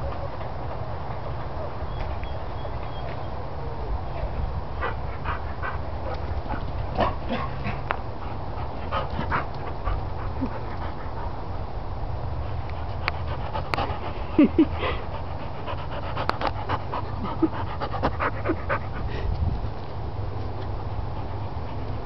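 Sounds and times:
dog panting: 4.8s - 11.6s, 12.5s - 19.4s, 20.9s - 22.0s.

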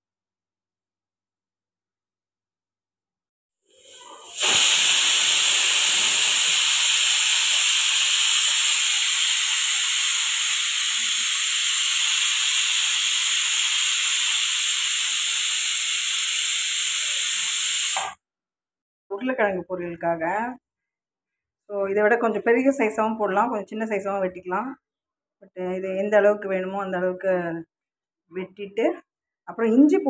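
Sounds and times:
pressure cooker steam hissing: 3.7s - 18.2s.

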